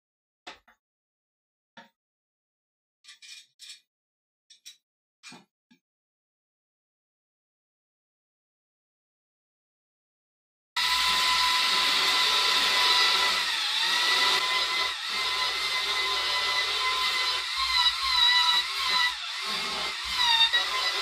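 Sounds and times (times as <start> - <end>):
power tool motor whine: 10.8 - 21.0.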